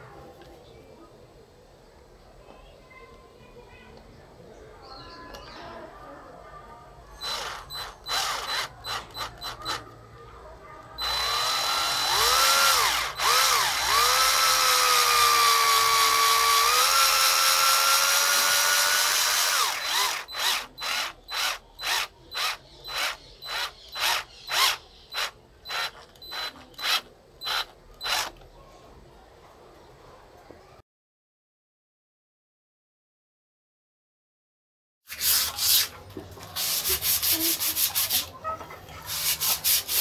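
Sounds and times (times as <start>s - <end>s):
cordless drill whining: 7.2s - 9.8s, 11.0s - 28.4s.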